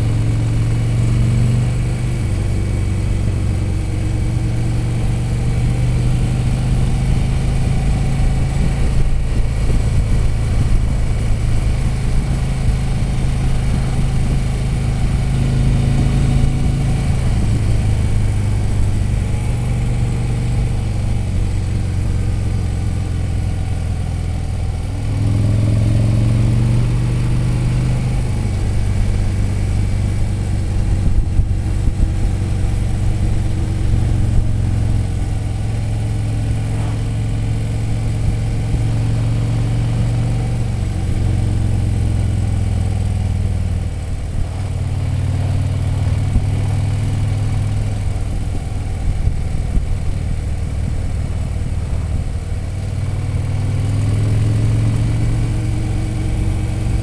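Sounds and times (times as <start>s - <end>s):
motorcycle engine running: 0.0s - 57.0s
wind rush: 36.2s - 39.0s.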